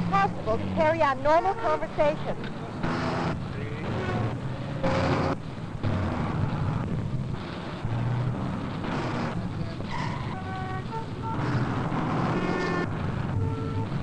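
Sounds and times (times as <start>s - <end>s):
car horn honking: 0.0s - 5.4s, 9.9s - 14.0s
city street traffic: 0.0s - 14.0s.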